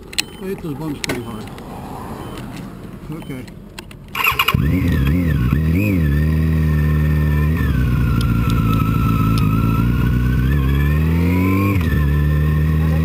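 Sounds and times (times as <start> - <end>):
motorcycle engine running: 4.2 - 13.0.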